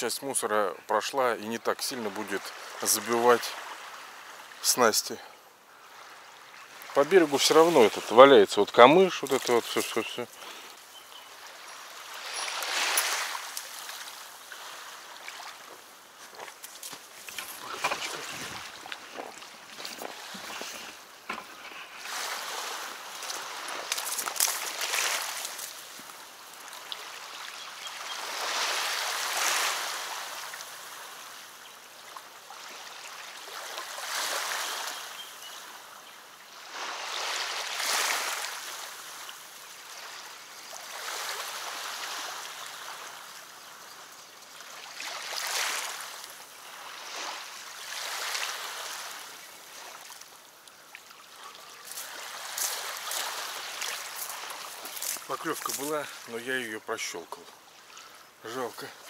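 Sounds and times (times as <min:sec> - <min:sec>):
small waves washing on riverbank: 0:00.0 - 0:59.0
footsteps on riverbank: 0:06.7 - 0:31.3, 0:44.6 - 0:59.0.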